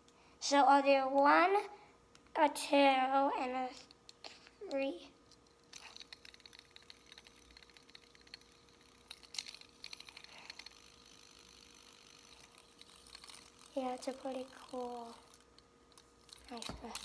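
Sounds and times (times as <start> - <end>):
fidget spinner ticking: 3.8 - 17.0.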